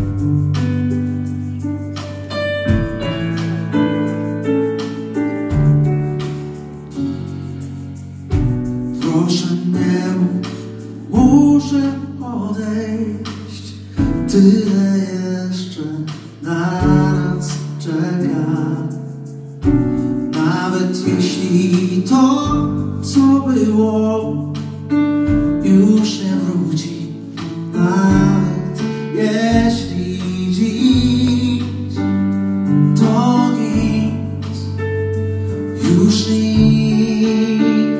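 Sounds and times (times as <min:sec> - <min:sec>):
keyboard and guitar chords: 0:00.0 - 0:09.1
person singing: 0:09.0 - 0:19.0, 0:20.3 - 0:24.6, 0:25.6 - 0:32.3, 0:32.9 - 0:34.8, 0:35.7 - 0:37.9.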